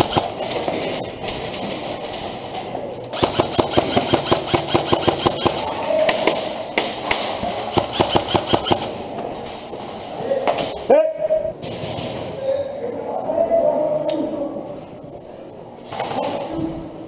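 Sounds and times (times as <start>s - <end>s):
airsoft rifle rapid fire: 0.0s - 0.6s, 3.2s - 6.4s, 7.7s - 8.9s.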